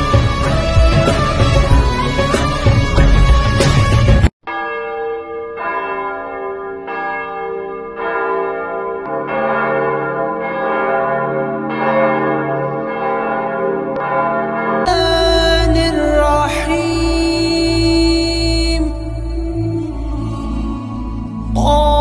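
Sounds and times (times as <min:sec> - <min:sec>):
church bells ringing: 0:04.5 - 0:21.5.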